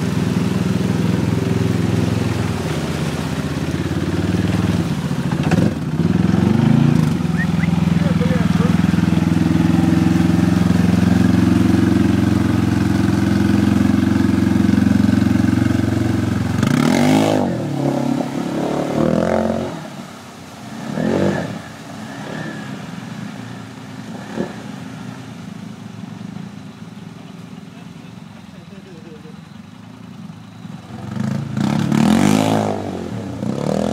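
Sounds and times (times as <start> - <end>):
quad bike engine revving: 0.0 - 20.0, 20.7 - 23.2, 24.0 - 24.8, 30.6 - 33.9.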